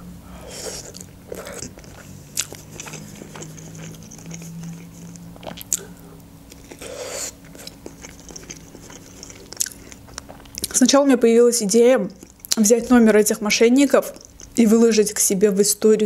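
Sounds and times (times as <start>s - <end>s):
woman chewing food: 0.3s - 15.2s
crunching while biting: 0.4s - 10.8s, 12.1s - 13.0s, 14.0s - 14.6s.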